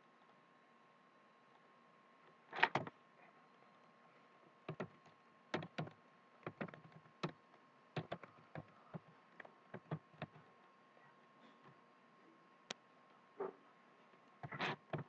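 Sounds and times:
computer keyboard typing: 0:05.6 - 0:05.9, 0:08.0 - 0:09.1.

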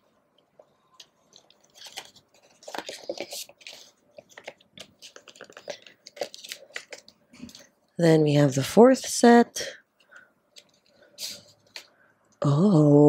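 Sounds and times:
cards scraping and shuffling: 0:01.0 - 0:07.7
postcards tapping and rustling: 0:01.0 - 0:07.7.

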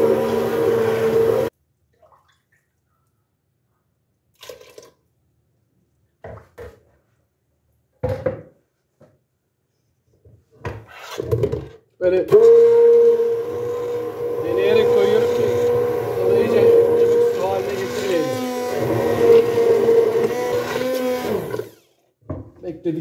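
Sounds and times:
blender and pot clattering: 0:00.0 - 0:01.5, 0:12.3 - 0:21.9
hand blender whirring: 0:00.0 - 0:01.5, 0:12.3 - 0:22.0.

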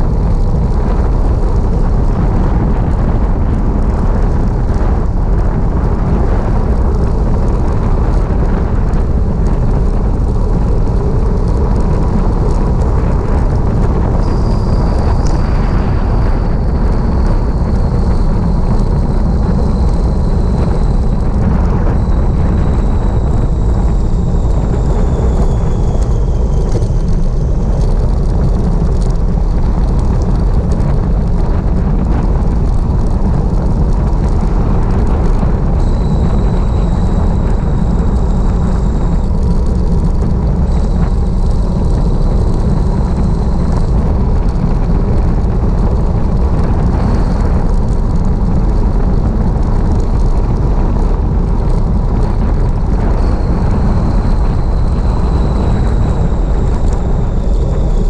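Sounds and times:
wind rushing over microphone: 0:00.0 - 0:58.0
faint high whistle: 0:14.2 - 0:27.9, 0:35.8 - 0:44.0.

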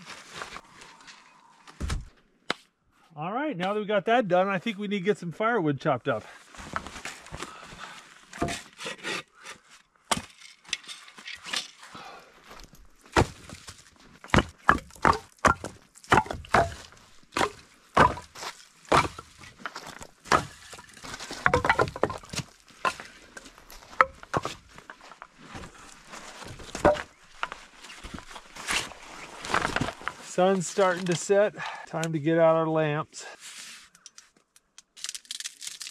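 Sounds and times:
wood pieces knocking together: 0:14.3 - 0:18.3, 0:18.9 - 0:24.6, 0:26.7 - 0:27.5
hatchet chopping dry wood: 0:14.3 - 0:19.5, 0:20.2 - 0:23.0.

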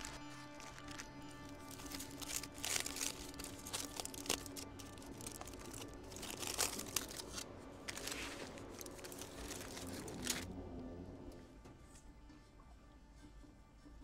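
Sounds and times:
aluminium foil crinkling: 0:00.0 - 0:10.5.

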